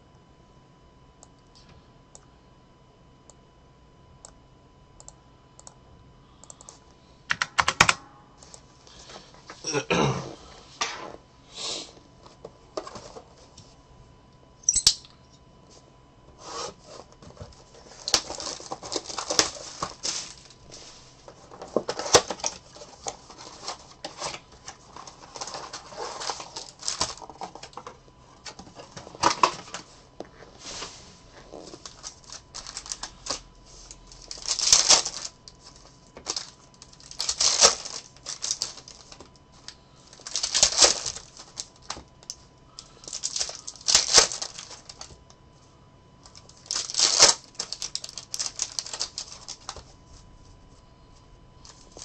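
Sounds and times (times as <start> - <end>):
plastic wrap crinkling: 17.5 - 29.9, 30.6 - 42.3, 42.9 - 45.2, 46.2 - 49.8, 51.6 - 52.0
cardboard tearing: 36.3 - 39.0, 40.2 - 41.4.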